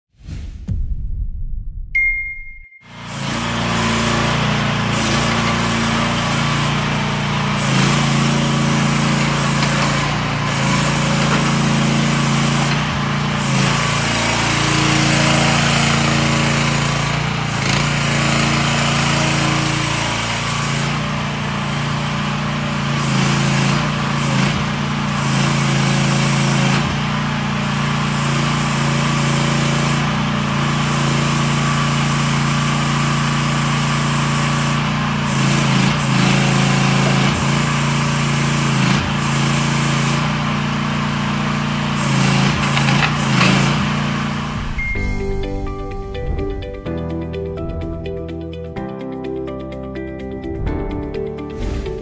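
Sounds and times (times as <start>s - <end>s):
excavator engine running: 2.9s - 33.5s, 34.9s - 52.0s
hydraulic boom working: 2.9s - 48.7s.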